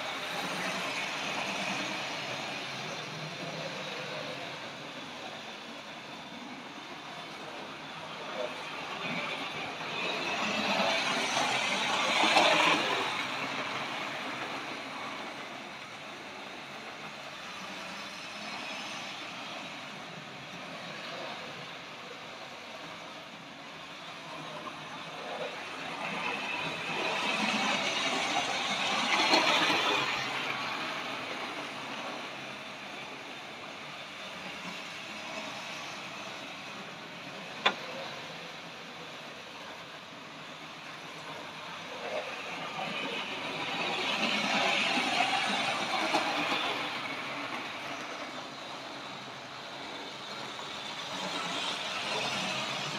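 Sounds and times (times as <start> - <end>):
model train whirring and rattling: 0.0 - 52.9.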